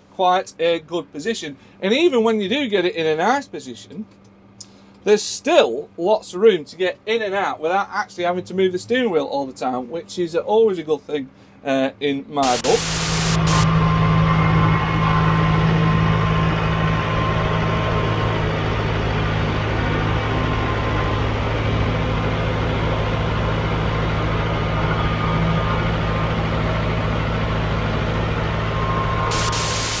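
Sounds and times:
tractor diesel engine droning: 12.4 - 30.0.

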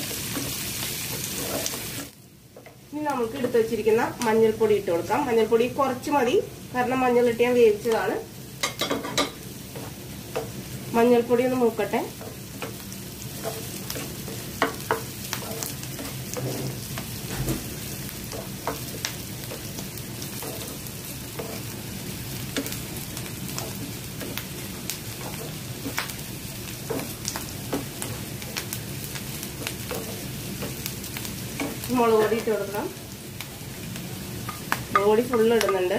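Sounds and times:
vegetables sizzling in oil: 0.0 - 35.9
spatula scraping and tapping pan: 12.2 - 21.8, 23.5 - 30.9, 31.5 - 32.6.

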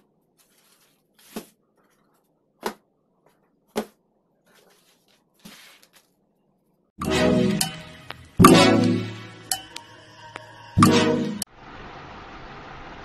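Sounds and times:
soft plastic rustles: 0.0 - 2.4, 4.4 - 6.8.

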